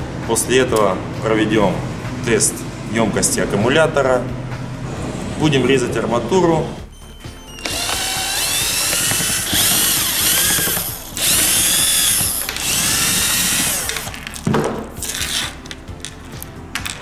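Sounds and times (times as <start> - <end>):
cordless drill motor whine: 7.3 - 14.2.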